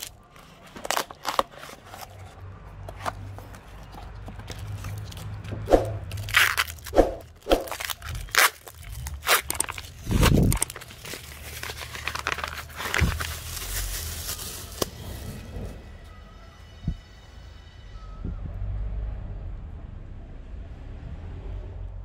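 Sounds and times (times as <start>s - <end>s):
paper and tape tearing: 0.0s - 2.3s, 4.5s - 15.4s.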